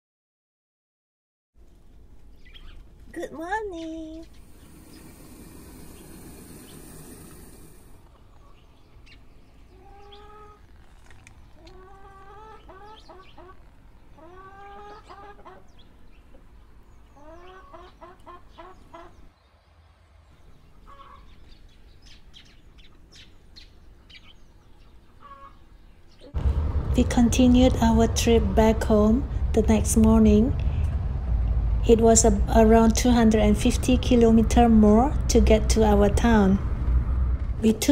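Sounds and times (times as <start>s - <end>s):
short rising bird calls: 4.2s - 8.6s.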